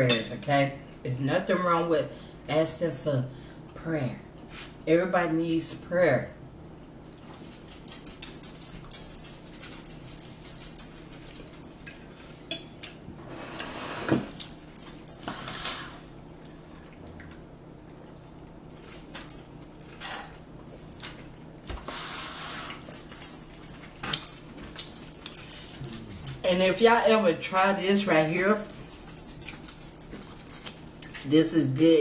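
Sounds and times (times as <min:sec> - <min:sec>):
forks clinking on plastic plates: 0:18.9 - 0:21.2.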